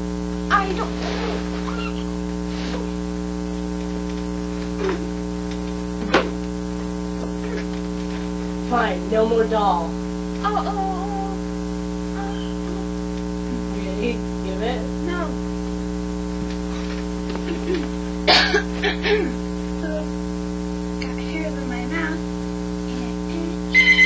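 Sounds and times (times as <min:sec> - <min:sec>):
electrical mains hum: 0:00.0 - 0:24.0.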